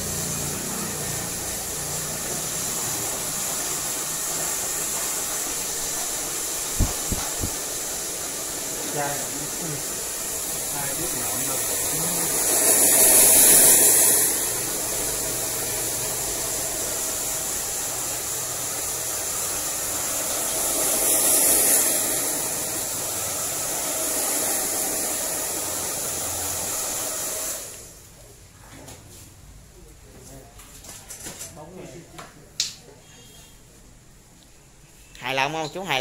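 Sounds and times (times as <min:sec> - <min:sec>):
hair dryer blowing: 0:00.0 - 0:28.0.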